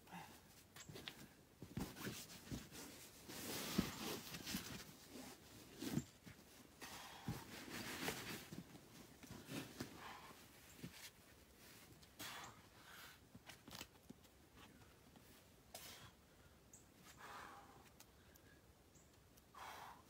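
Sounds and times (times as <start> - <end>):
shoes and hands scraping on rock: 0.8 - 10.2.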